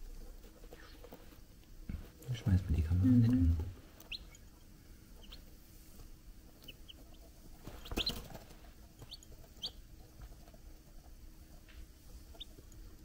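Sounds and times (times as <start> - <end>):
chicks peeping: 0.5 - 13.0.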